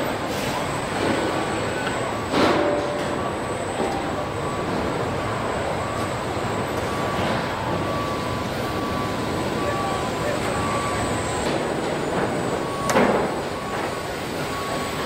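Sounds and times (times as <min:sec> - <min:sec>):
machinery noise: 0:00.0 - 0:15.0.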